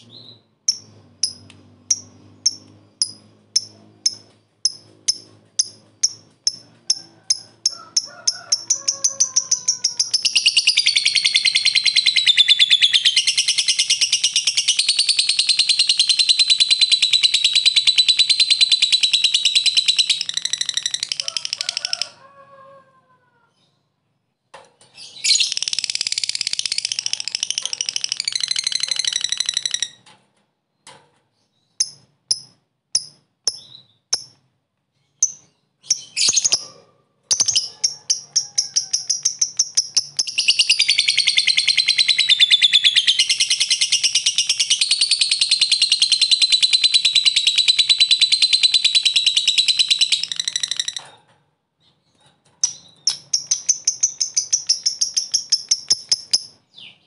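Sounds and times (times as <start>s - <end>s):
bird chirps: 0.0s - 8.2s, 8.8s - 21.3s, 23.5s - 30.1s, 30.7s - 36.7s, 37.3s - 38.0s, 38.6s - 51.1s, 51.8s - 57.0s
lovebird rapid shrill chattering: 9.4s - 21.6s, 37.3s - 50.9s, 52.7s - 56.6s.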